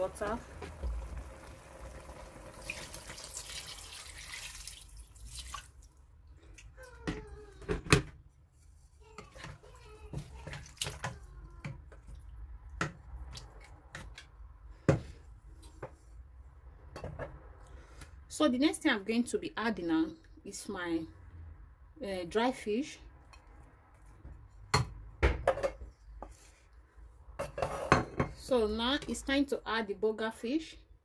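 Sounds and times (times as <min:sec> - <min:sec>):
water poured into cooking pot: 0:00.7 - 0:06.0
wooden spatula stirring pot: 0:08.4 - 0:16.1.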